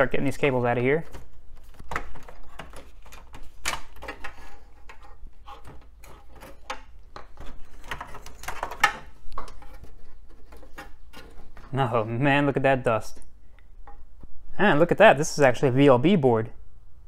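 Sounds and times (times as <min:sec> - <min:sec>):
cable rustling: 0:00.3 - 0:12.3.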